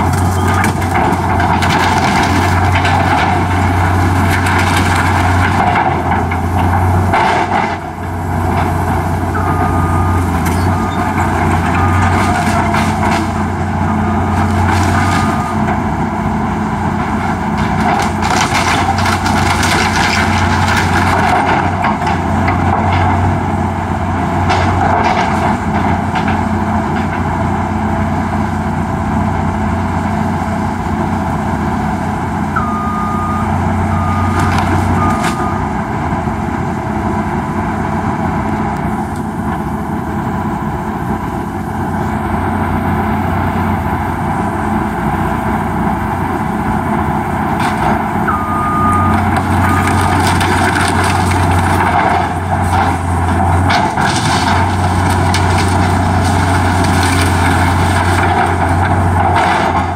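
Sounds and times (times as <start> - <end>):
wood cracking and crunching: 0.0 - 8.9, 16.9 - 23.3, 49.1 - 59.9
excavator diesel engine running: 0.0 - 59.9
high beeps: 9.4 - 11.2, 32.6 - 35.6, 48.3 - 50.2.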